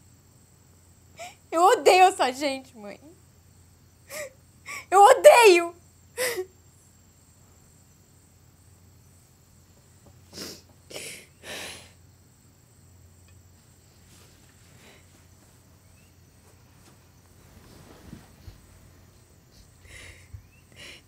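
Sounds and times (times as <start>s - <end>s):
faint low room hum: 0.0s - 21.0s
woman sobbing: 4.1s - 6.5s.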